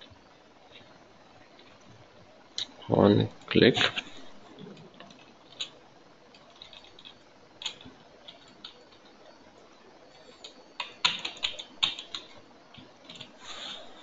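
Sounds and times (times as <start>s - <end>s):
computer keyboard typing: 3.9s - 9.4s, 10.1s - 13.8s.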